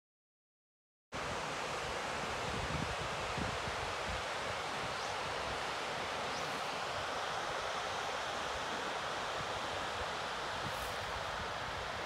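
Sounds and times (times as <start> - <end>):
water rushing over a weir: 1.2 - 12.0
wind buffeting microphone: 2.3 - 5.6.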